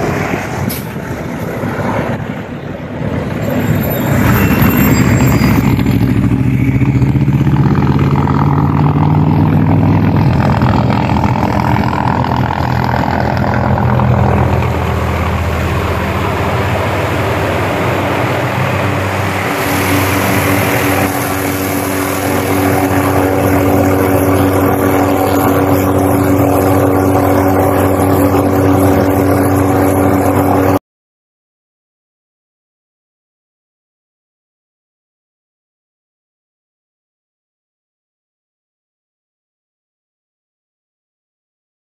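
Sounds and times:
helicopter engine and rotor: 0.0s - 7.8s, 9.3s - 30.8s.

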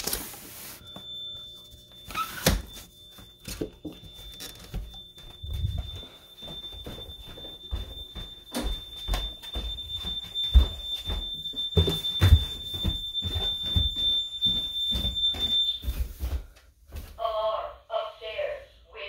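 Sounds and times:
high-pitched alarm tone: 0.1s - 16.4s
bare footsteps on wooden stairs: 4.7s - 17.2s.

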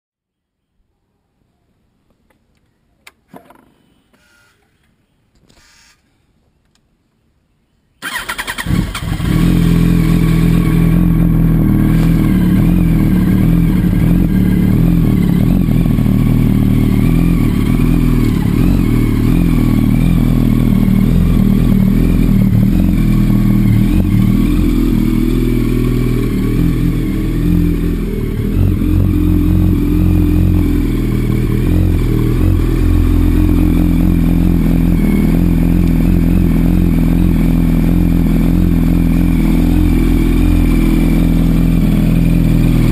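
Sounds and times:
motorcycle engine idling: 8.0s - 42.9s.

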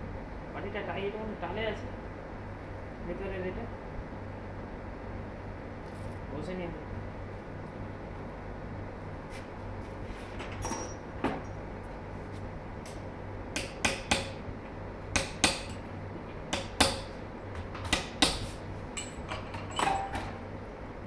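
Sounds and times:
metal-on-metal taps and clinks: 10.6s - 11.5s.

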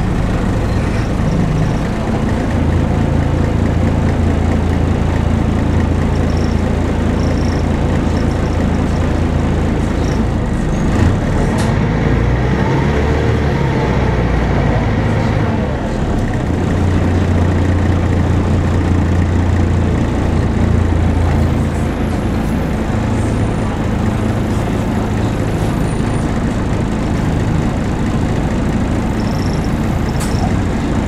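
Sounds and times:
bus diesel engine droning: 0.0s - 31.0s.

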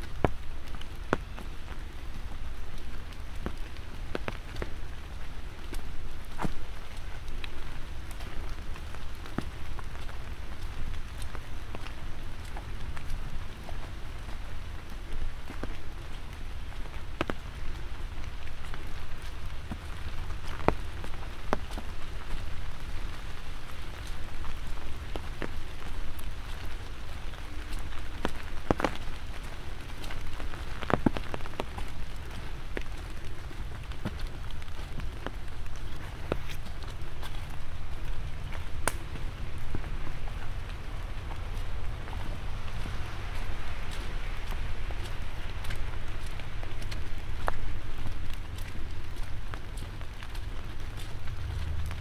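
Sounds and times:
light rain falling: 0.0s - 52.0s
raindrops ticking: 0.0s - 52.0s
low steady rumble: 31.4s - 52.0s.

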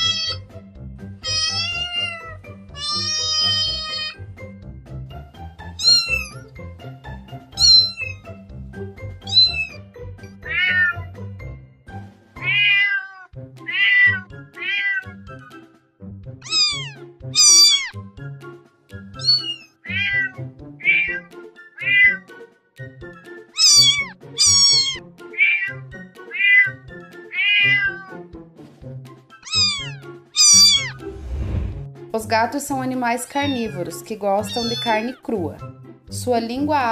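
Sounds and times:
cat meowing: 0.0s - 0.4s, 1.2s - 4.2s, 5.7s - 6.5s, 7.6s - 8.3s, 9.2s - 9.8s, 10.4s - 11.1s, 12.4s - 15.2s, 16.4s - 18.0s, 19.2s - 22.3s, 23.5s - 28.3s, 29.4s - 31.1s, 33.3s - 35.2s
background music: 0.0s - 36.9s.

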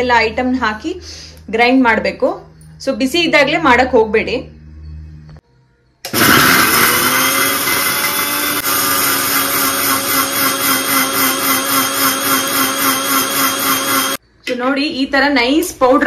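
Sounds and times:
mixer grinder motor whining: 6.1s - 14.2s.

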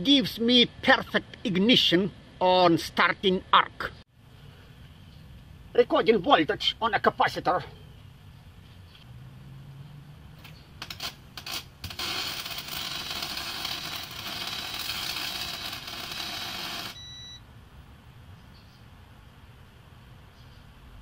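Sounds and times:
welding arc crackling hiss: 10.8s - 17.0s
electronic beep: 16.7s - 17.4s.

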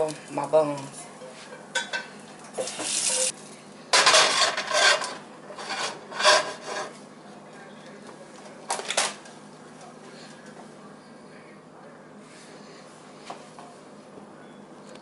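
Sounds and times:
pan scraping on burner: 1.3s - 3.3s, 4.0s - 7.0s.

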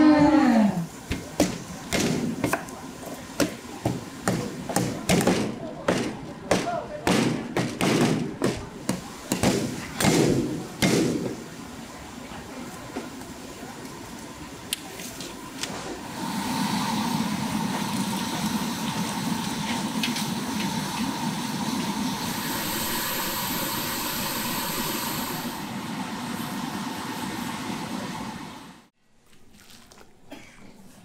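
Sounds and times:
gas burner hissing: 0.3s - 29.0s
broth boiling and bubbling: 15.9s - 27.4s.

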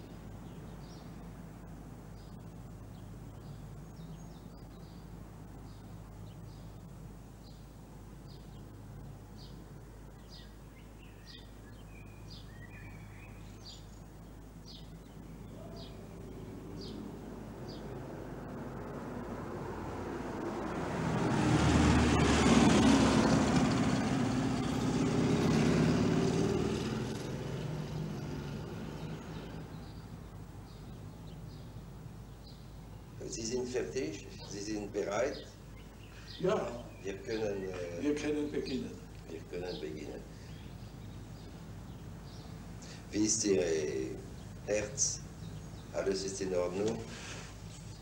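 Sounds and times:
small bird chirping: 0.0s - 19.4s, 26.2s - 48.0s
car driving past: 15.4s - 30.1s.

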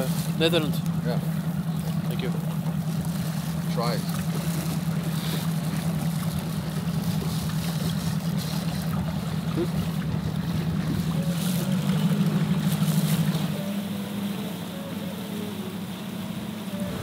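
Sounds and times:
boat motor humming: 0.0s - 17.0s
water noise: 0.0s - 17.0s
wind: 0.0s - 17.0s.

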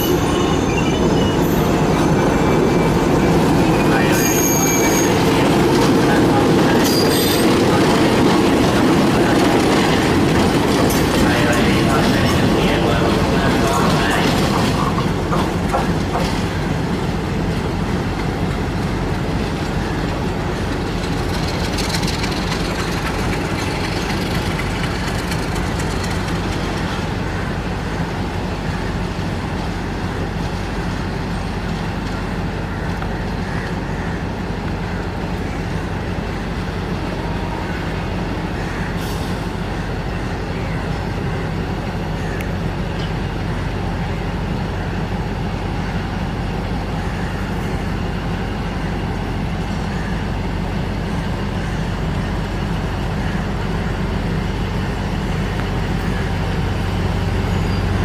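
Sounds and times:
diesel locomotive engine drone: 0.0s - 58.0s
wheels clicking over rail joints: 18.1s - 27.3s.

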